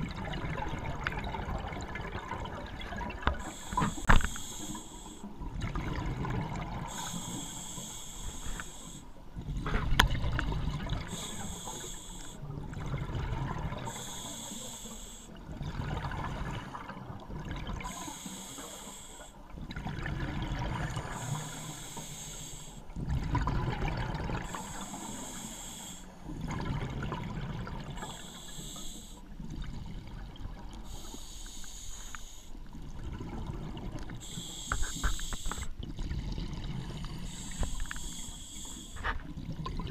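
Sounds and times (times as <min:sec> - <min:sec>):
hissing regulator inhalation: 0:03.3 - 0:05.3, 0:06.8 - 0:09.2, 0:11.0 - 0:12.5, 0:13.9 - 0:15.3, 0:17.8 - 0:19.4, 0:21.0 - 0:22.9, 0:24.4 - 0:26.2, 0:28.0 - 0:29.3, 0:30.8 - 0:32.6, 0:34.2 - 0:35.7, 0:37.1 - 0:39.2.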